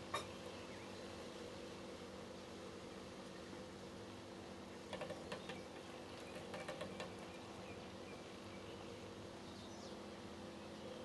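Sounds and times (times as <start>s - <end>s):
steady low hum: 0.0s - 11.0s
bird tapping against window: 4.9s - 5.7s, 6.3s - 7.2s.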